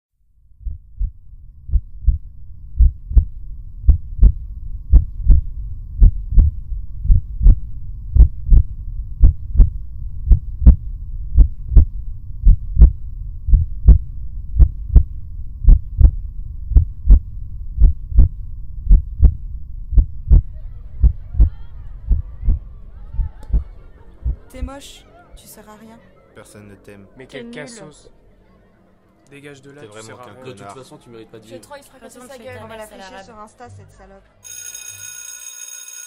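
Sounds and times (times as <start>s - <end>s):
low steady hum: 0.3s - 29.2s
heartbeat thumps: 0.5s - 24.9s.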